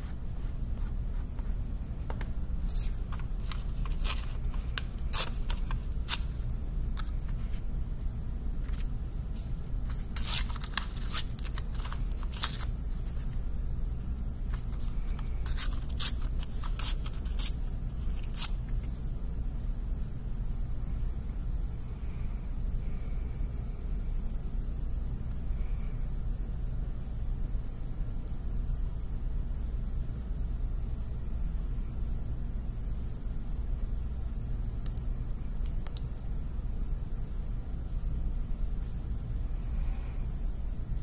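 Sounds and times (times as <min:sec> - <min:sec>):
steady low hum: 0:00.0 - 0:41.0
paper tearing: 0:02.6 - 0:06.3, 0:09.9 - 0:13.3, 0:14.5 - 0:18.6.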